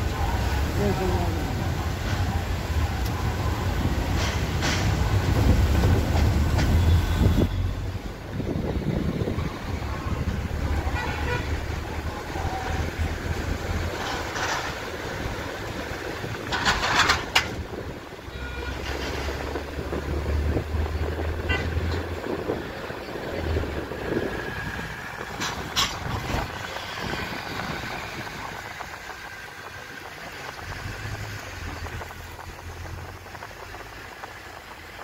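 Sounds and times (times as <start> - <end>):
car engine and road noise: 0.0 - 35.0
car horns honking: 10.8 - 11.6, 18.3 - 19.1, 21.4 - 22.1.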